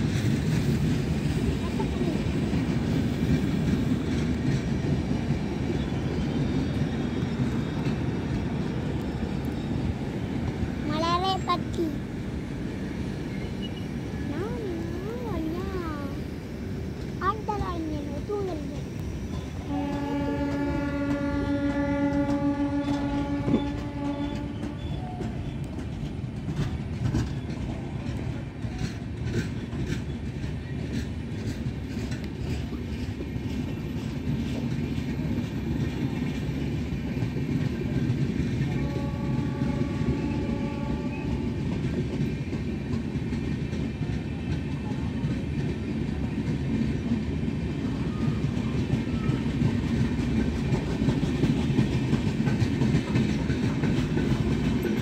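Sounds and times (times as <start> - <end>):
train wheels rumbling on rails: 0.0 - 55.0
wheels clicking over rail joints: 17.0 - 55.0
train horn: 19.6 - 25.3, 38.7 - 41.7.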